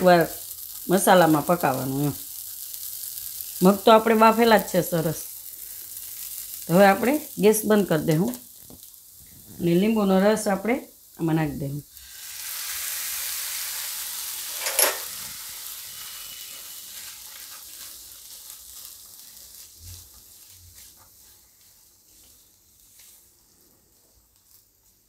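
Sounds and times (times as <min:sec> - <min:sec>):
juice sizzling in hot pan: 0:00.0 - 0:25.0
spatula stirring beans: 0:16.0 - 0:25.0.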